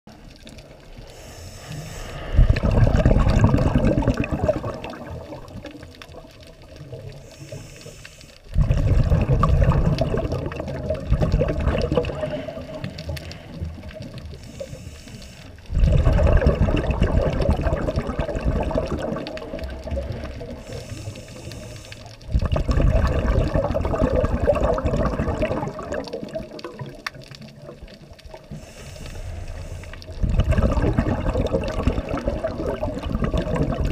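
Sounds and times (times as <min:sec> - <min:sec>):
faint hiss of inhalation: 0:01.0 - 0:02.6, 0:07.2 - 0:08.5, 0:12.1 - 0:15.7, 0:20.0 - 0:22.3, 0:28.4 - 0:30.2
regulator exhaling bubbles underwater: 0:01.9 - 0:07.7, 0:08.4 - 0:14.8, 0:15.6 - 0:33.9.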